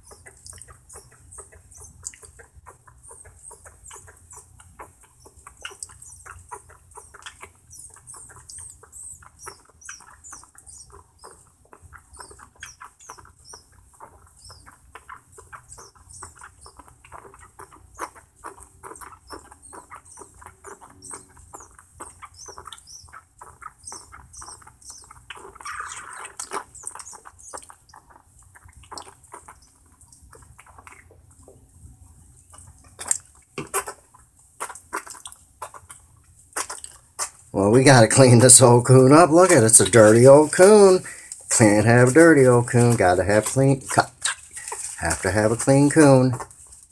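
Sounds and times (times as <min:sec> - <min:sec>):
high chirps: 0:05.0 - 0:31.1, 0:37.6 - 0:46.4
raccoon sucking from bottle: 0:32.6 - 0:37.5, 0:42.7 - 0:45.2.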